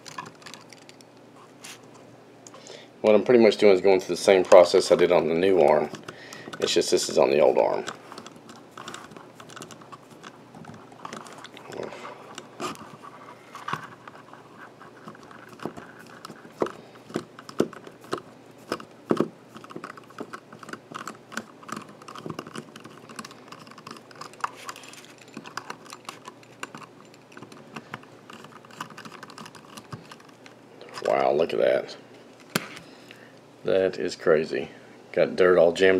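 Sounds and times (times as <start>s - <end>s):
screwdriver scraping plastic: 7.8s - 30.4s.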